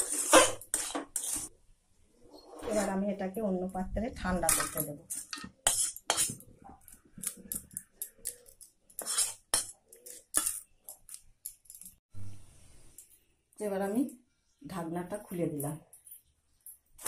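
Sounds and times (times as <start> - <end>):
spatula scraping a wok: 0.0 - 1.5, 2.4 - 3.0, 4.5 - 6.4, 8.3 - 10.7.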